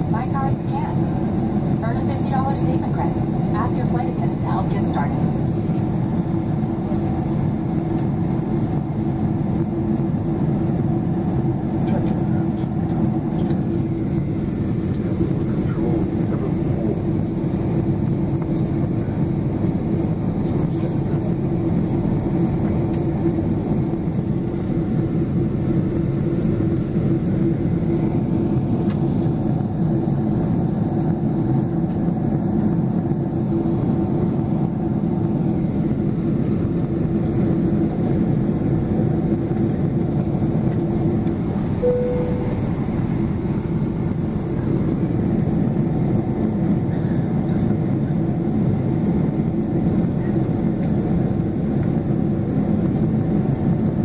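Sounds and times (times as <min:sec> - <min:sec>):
airplane cabin engine rush: 0:00.0 - 0:54.0
brief cabin tone: 0:41.8 - 0:43.4.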